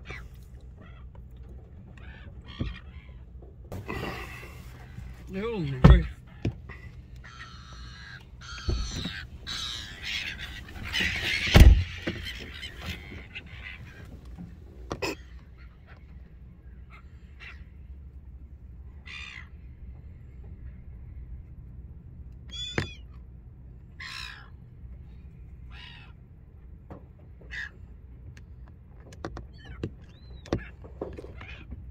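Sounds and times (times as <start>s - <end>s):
gulls squawking: 0.0s - 18.0s, 19.0s - 19.7s, 22.4s - 23.2s, 23.9s - 24.7s, 25.6s - 26.2s, 27.4s - 27.8s, 29.5s - 31.8s
loud thumps: 10.9s - 12.3s.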